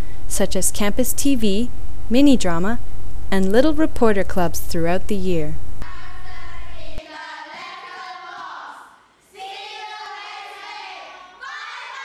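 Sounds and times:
children's voices in unison: 0:05.8 - 0:12.0.

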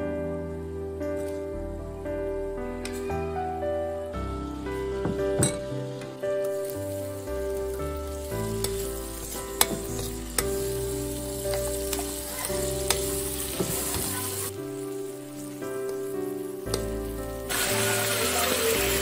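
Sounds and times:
food sizzling in a wok: 0:05.7 - 0:19.0.

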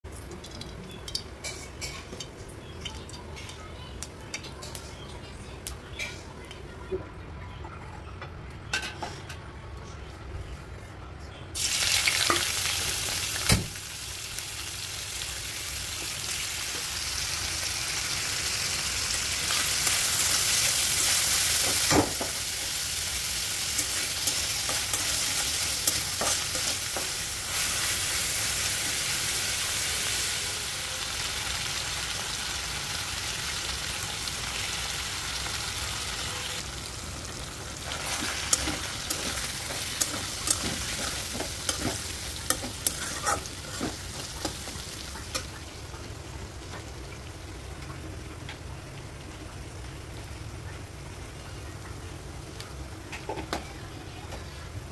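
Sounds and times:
fish frying in hot oil: 0:11.6 - 0:54.1.

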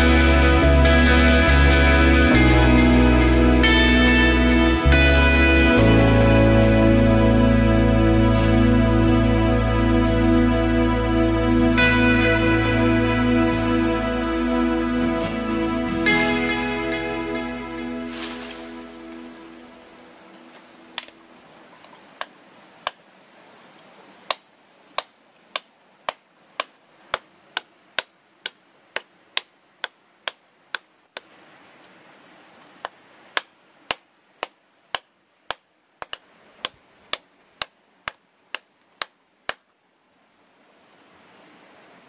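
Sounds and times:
sharp knocks: 0:33.4 - 0:39.6.

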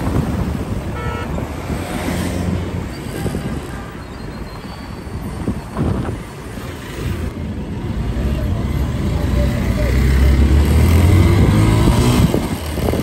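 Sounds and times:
wind on microphone: 0:11.1 - 0:13.0.

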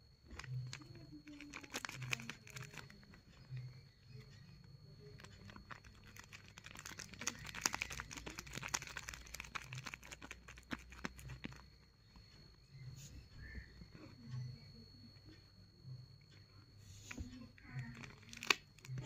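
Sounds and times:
paper and tape crinkling: 0:00.3 - 0:03.5, 0:05.1 - 0:11.6, 0:17.8 - 0:19.0.

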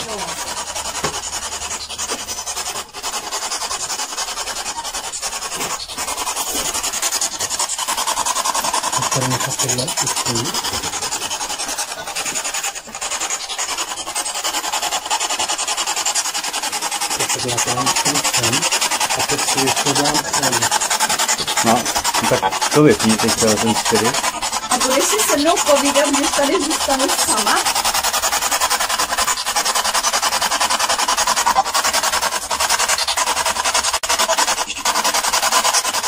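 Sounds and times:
choppy radio static: 0:08.5 - 0:13.4, 0:17.1 - 0:27.7.

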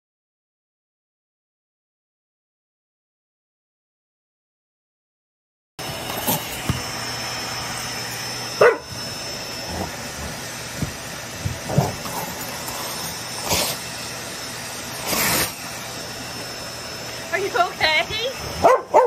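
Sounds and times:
dogs yipping and barking: 0:08.5 - 0:10.4, 0:18.4 - 0:19.0.

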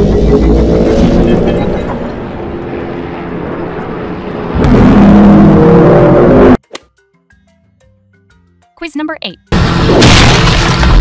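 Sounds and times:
helicopters flying overhead: 0:00.0 - 0:06.6.

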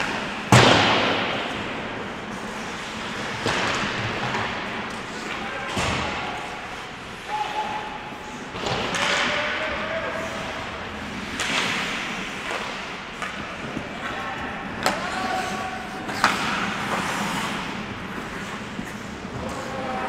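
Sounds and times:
skates scraping ice: 0:00.0 - 0:20.0
hockey stick and puck cracks: 0:08.5 - 0:09.6, 0:11.2 - 0:14.2, 0:14.8 - 0:19.5.

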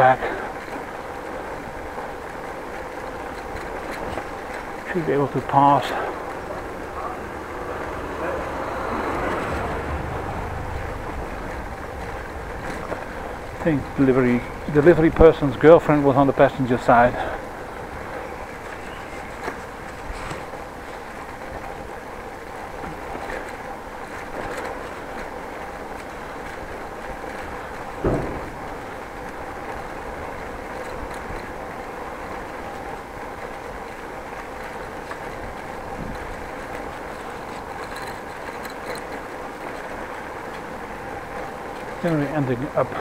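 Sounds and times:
bicycle rolling over brick paving: 0:00.0 - 0:43.0
knock: 0:28.0 - 0:28.6.

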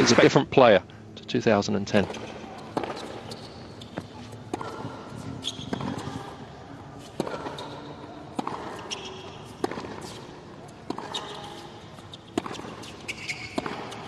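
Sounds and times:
tennis ball hit by rackets: 0:02.0 - 0:03.4, 0:04.0 - 0:06.4, 0:07.0 - 0:14.0
short high squeaks: 0:02.0 - 0:06.3, 0:11.0 - 0:14.0.

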